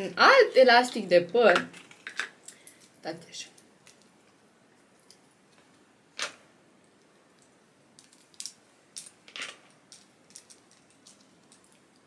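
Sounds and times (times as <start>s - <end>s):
plastic packaging clicks and crinkles: 1.5s - 3.0s, 7.4s - 12.0s.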